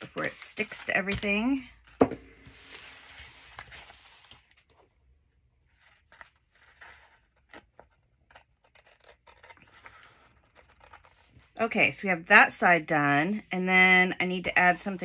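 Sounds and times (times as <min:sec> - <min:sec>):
paper rustling: 0:00.1 - 0:04.9, 0:05.6 - 0:11.5
scissors snipping paper: 0:07.7 - 0:11.1.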